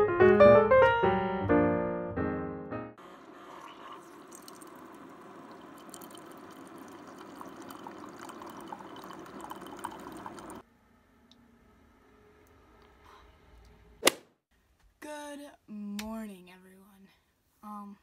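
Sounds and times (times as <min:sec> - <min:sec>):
coffee machine pouring into mug: 0:03.0 - 0:10.6.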